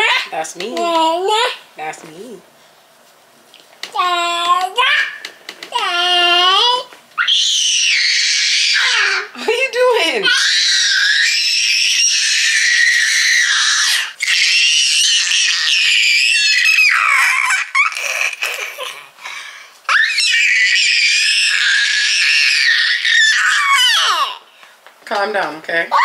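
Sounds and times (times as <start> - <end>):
toddler screaming: 5.8 - 9.4, 10.2 - 19.0, 19.9 - 24.4.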